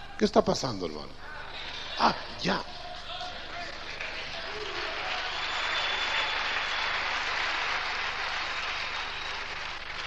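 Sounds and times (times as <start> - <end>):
crowd applauding: 3.5 - 10.0.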